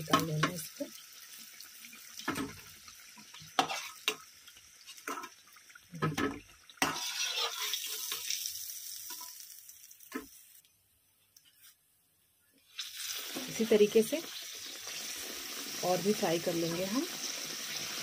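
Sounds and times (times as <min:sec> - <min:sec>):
pastries sizzling in hot oil: 0:00.0 - 0:10.8, 0:12.6 - 0:18.0
metal utensil scraping a pan: 0:03.5 - 0:04.2, 0:06.1 - 0:08.4.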